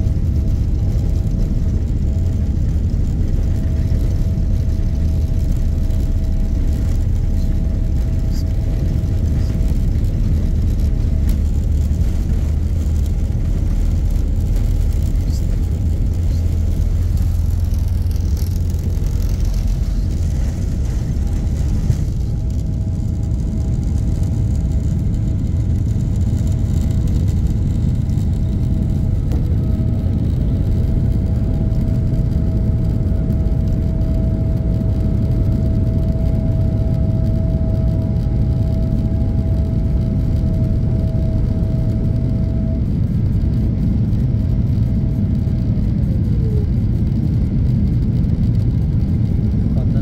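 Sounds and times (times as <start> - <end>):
airliner engines rumbling: 0.0 - 50.0
faint engine whine: 0.0 - 50.0.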